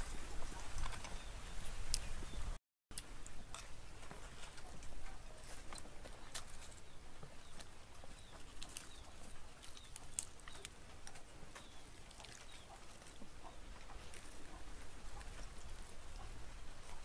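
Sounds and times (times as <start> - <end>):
person chewing: 7.5 - 16.4.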